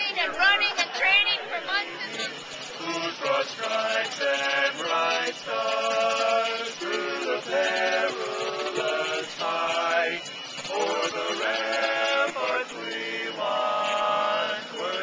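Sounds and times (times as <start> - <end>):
men singing a cappella harmony: 1.9 - 15.0.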